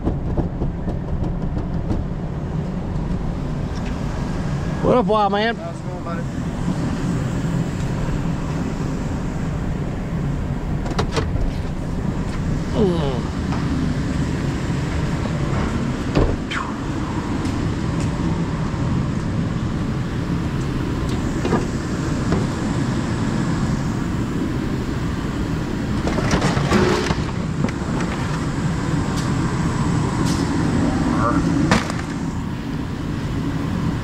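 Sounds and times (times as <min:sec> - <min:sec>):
vehicle engine idling: 0:00.0 - 0:26.1.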